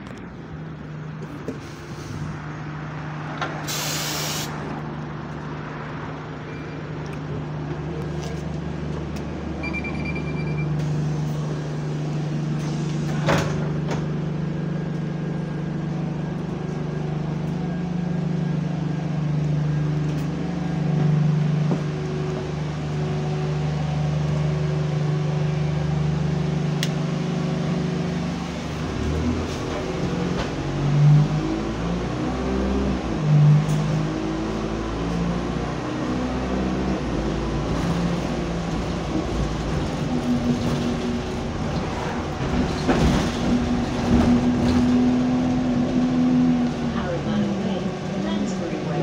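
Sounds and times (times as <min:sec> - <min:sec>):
diesel bus engine idling: 0:00.0 - 0:31.0, 0:32.9 - 0:49.0
pneumatic air hiss: 0:03.6 - 0:04.5
electronic beep: 0:09.6 - 0:10.8.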